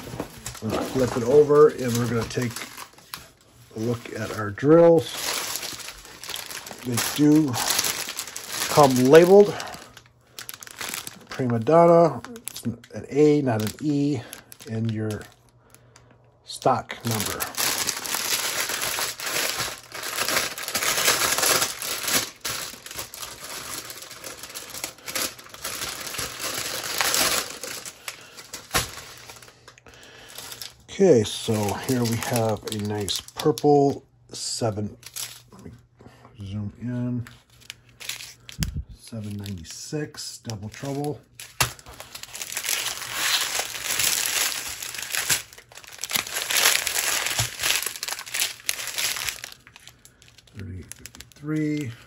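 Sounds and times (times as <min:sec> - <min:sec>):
plastic wrap crinkling: 0:00.0 - 0:34.0, 0:35.0 - 0:35.6, 0:37.2 - 0:52.0.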